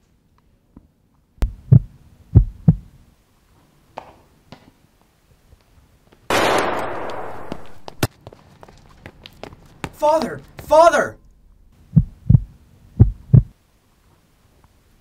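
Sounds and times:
deep thuds: 0:01.4 - 0:02.9, 0:11.9 - 0:13.6.

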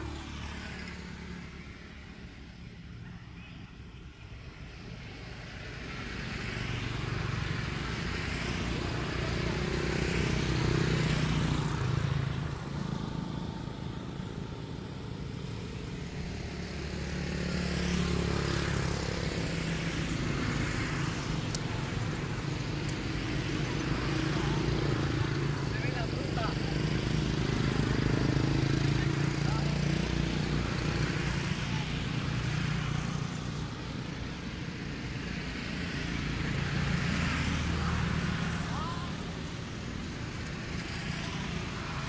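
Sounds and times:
vehicles driving past: 0:00.0 - 0:42.0.

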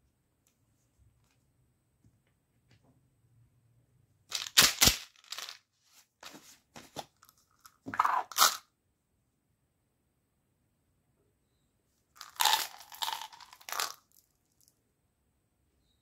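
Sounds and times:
plastic ball clicking and crackling: 0:12.2 - 0:14.7.

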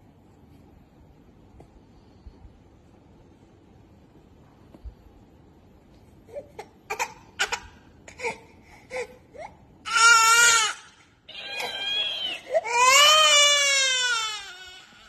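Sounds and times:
baby crying: 0:06.4 - 0:15.0.

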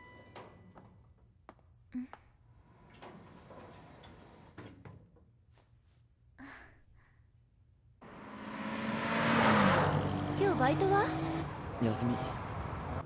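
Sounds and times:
car engine and road noise: 0:08.0 - 0:13.0.

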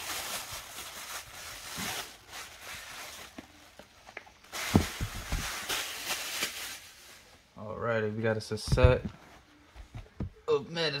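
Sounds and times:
plastic bag crinkling: 0:00.0 - 0:03.7, 0:04.4 - 0:07.4
thump: 0:08.7 - 0:09.1.

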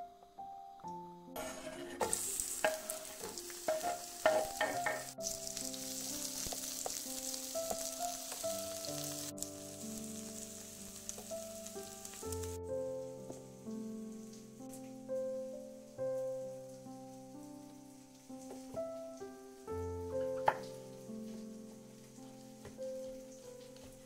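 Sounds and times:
onion sizzling in oil: 0:01.4 - 0:14.9, 0:15.8 - 0:24.0.

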